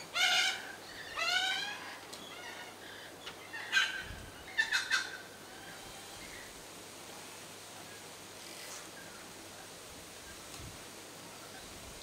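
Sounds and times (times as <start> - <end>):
lorikeets calling: 0.0 - 6.5.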